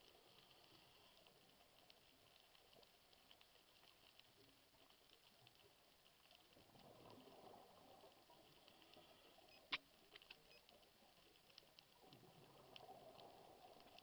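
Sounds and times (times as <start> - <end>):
underwater clicks and crackles: 0.0 - 14.0.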